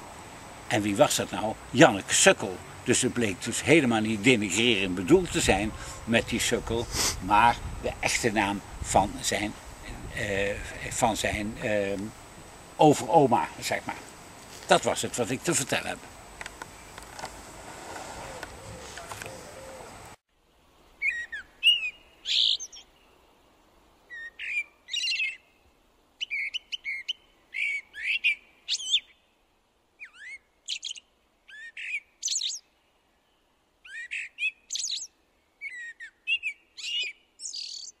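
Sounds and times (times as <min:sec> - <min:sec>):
songbird whistling and twittering: 0:21.0 - 0:22.9, 0:24.1 - 0:25.4, 0:26.2 - 0:29.2, 0:30.0 - 0:32.6, 0:33.8 - 0:38.0.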